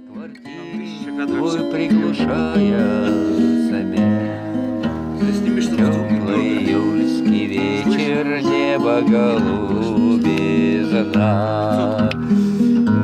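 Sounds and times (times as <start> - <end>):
acoustic guitar strumming chords: 0.0 - 13.0.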